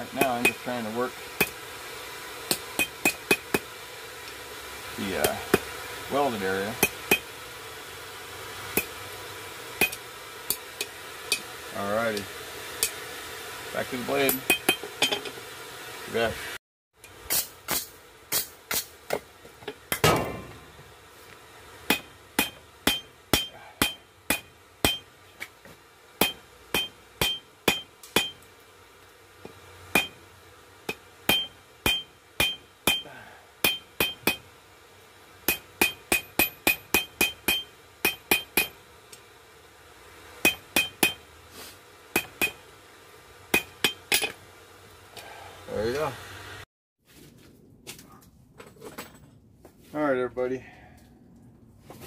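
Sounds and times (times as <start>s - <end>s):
hammer striking metal on anvil: 0.1s - 0.7s, 2.5s - 3.7s, 6.8s - 7.3s, 9.8s - 11.5s, 14.2s - 15.3s, 19.9s - 20.6s, 21.9s - 25.4s, 26.2s - 28.5s, 29.4s - 30.2s, 30.9s - 34.5s, 35.5s - 38.8s, 40.4s - 41.3s, 42.1s - 42.7s, 43.5s - 44.4s.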